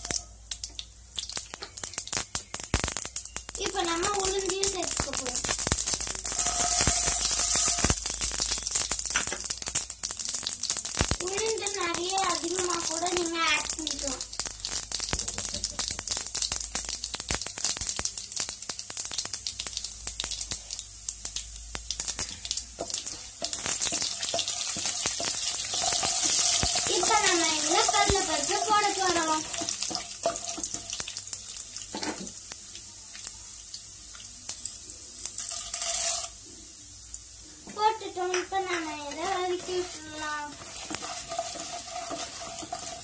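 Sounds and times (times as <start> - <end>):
oil sizzling with crackles and pops: 0.0 - 43.0
spatula stirring pan: 6.2 - 8.0, 22.2 - 31.1, 37.7 - 43.0.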